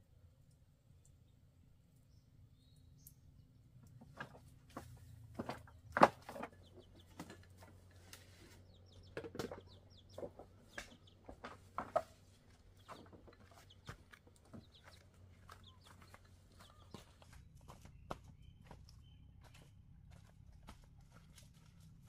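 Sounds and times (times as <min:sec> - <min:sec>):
chickens clucking: 0:05.4 - 0:17.3.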